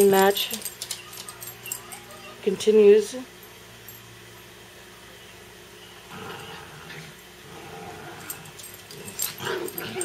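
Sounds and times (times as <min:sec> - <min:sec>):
small dogs growling softly: 0:06.1 - 0:10.0.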